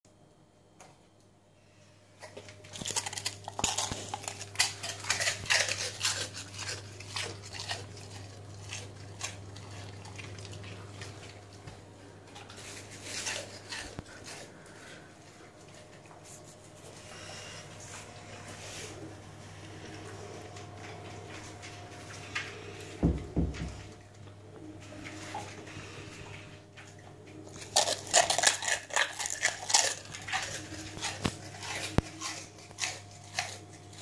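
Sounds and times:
dog crunching crackers: 2.2s - 22.9s, 23.8s - 34.0s
dog chewing: 2.2s - 24.2s, 25.0s - 34.0s.

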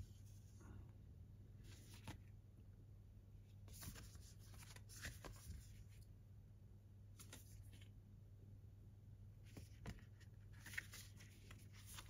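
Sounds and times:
low steady hum: 0.0s - 12.0s
paper rustling and sliding: 9.5s - 12.0s.

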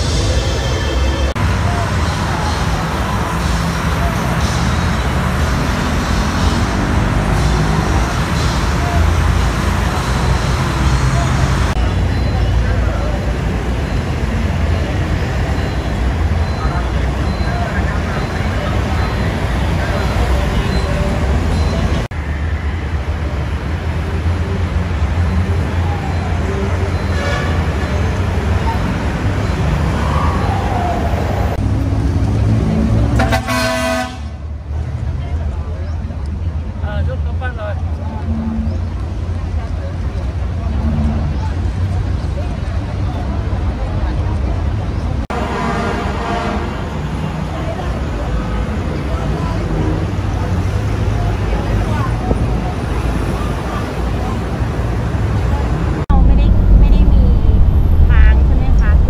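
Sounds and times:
diesel trucks rumbling: 0.0s - 59.0s
heavy road traffic idling: 0.0s - 59.0s
low engine and road noise: 0.0s - 59.0s
truck horn blast: 27.0s - 28.0s, 33.1s - 34.4s, 45.3s - 47.1s.

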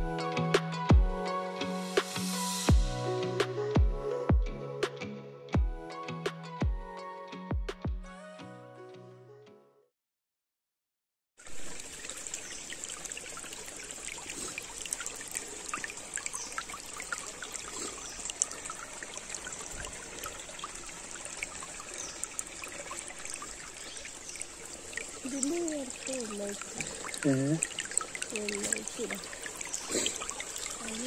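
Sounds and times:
soft music: 0.0s - 9.9s
stream trickling over stones: 11.4s - 31.0s.

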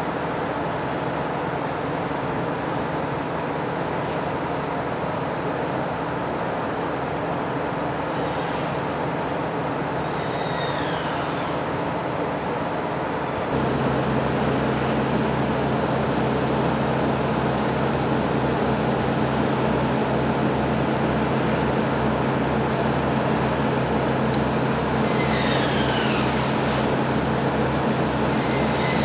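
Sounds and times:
machinery hum and roar: 0.0s - 29.0s
high squeal falling in pitch: 25.0s - 26.4s.

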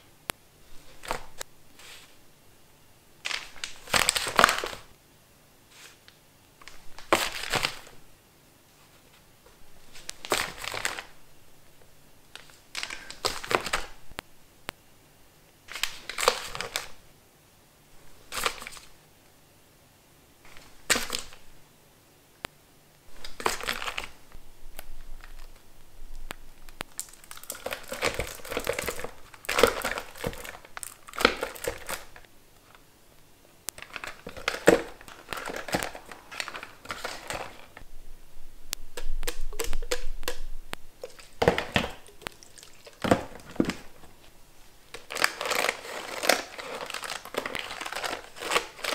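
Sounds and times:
plastic sachets crinkling: 3.2s - 4.9s, 6.6s - 8.0s, 9.9s - 11.2s, 12.4s - 14.0s, 15.7s - 17.0s, 18.3s - 18.9s, 20.5s - 21.5s, 23.1s - 32.8s, 33.7s - 37.8s, 38.7s - 48.9s.

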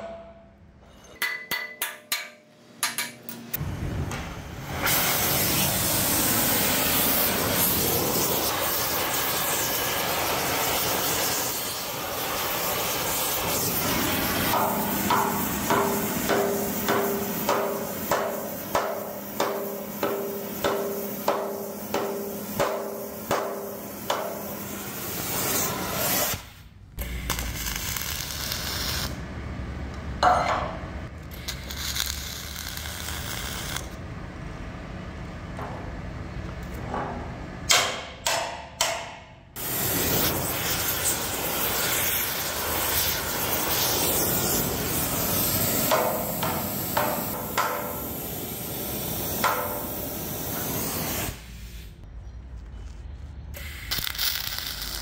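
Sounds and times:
arc gouging hiss and crackle: 4.7s - 29.2s, 31.2s - 34.0s, 39.6s - 52.0s, 53.6s - 55.0s.

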